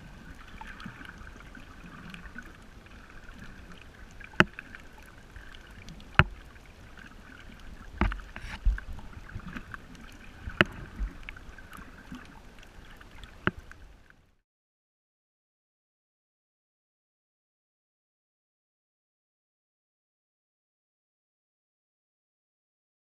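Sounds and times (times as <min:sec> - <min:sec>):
muffled underwater wash: 0:00.0 - 0:14.4
sharp underwater clicks and knocks: 0:04.2 - 0:04.9, 0:05.7 - 0:06.6, 0:07.9 - 0:11.4, 0:12.1 - 0:13.8.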